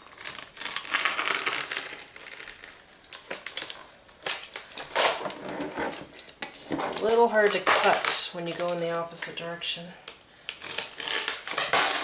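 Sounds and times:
plastic sheet being cut: 0:00.0 - 0:02.8, 0:04.3 - 0:06.0, 0:06.6 - 0:08.7, 0:10.6 - 0:12.0.

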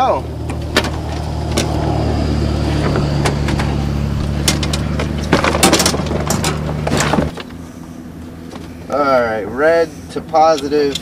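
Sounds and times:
vehicle engine idling: 0:00.0 - 0:11.0
knocks and clatters of gear: 0:02.8 - 0:07.6.

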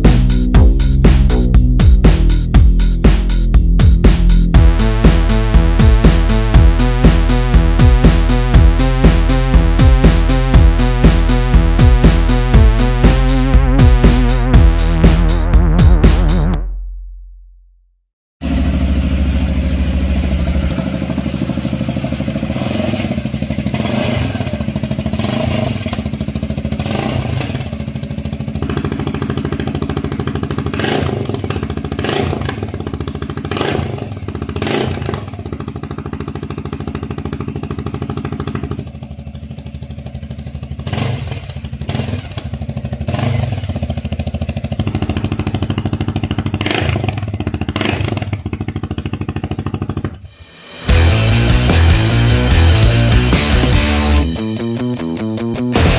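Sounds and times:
quad engine running: 0:00.0 - 0:16.6, 0:18.4 - 0:55.9.

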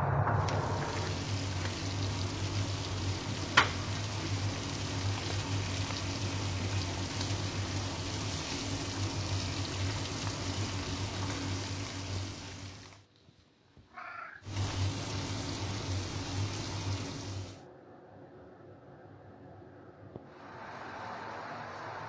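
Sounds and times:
low steady hum: 0:00.0 - 0:13.1
fish sizzling in a frying pan: 0:00.8 - 0:13.0, 0:14.5 - 0:17.6.

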